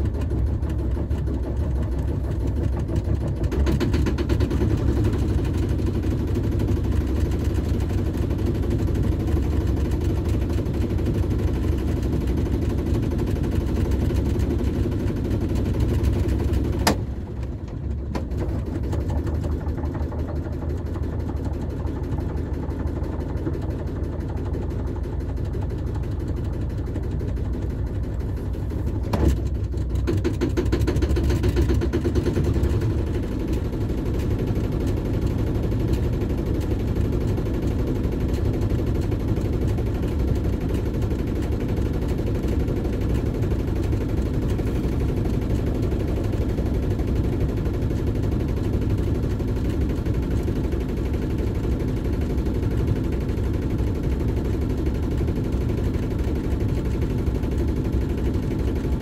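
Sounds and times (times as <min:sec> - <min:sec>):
boat engine running at low revs: 0:00.0 - 0:59.0
sharp engine knock: 0:01.2 - 0:05.5, 0:29.0 - 0:33.7.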